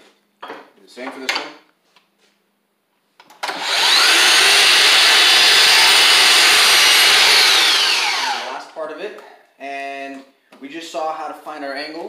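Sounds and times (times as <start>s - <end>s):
miter saw motor whining: 3.4s - 8.6s
saw cutting wood: 3.5s - 8.7s.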